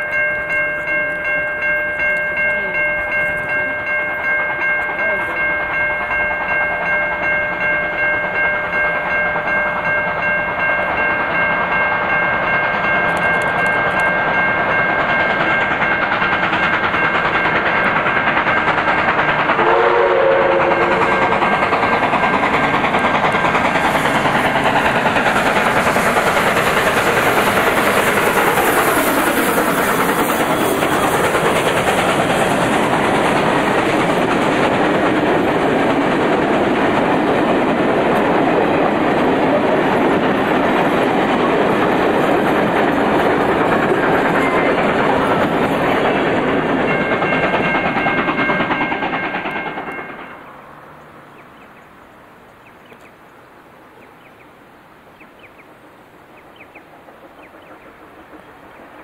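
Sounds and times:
wheels clattering over rail joints: 0.0s - 51.9s
steam locomotive passing: 0.0s - 59.0s
steam whistle blast: 19.5s - 21.2s.

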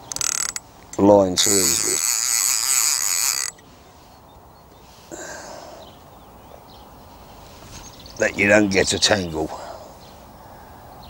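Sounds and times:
fishing reel ratchet clicking: 0.0s - 3.6s.

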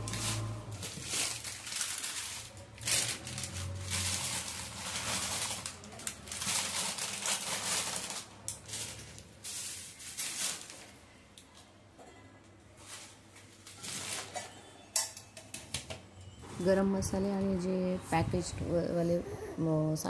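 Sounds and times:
plastic packets crinkling: 0.0s - 11.2s.

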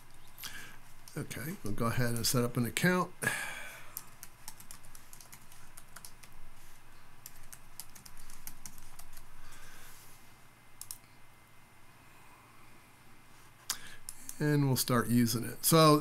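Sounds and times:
soft hiss: 0.0s - 16.0s
typing on computer keyboard: 4.0s - 6.4s, 7.2s - 9.3s, 10.8s - 11.0s.

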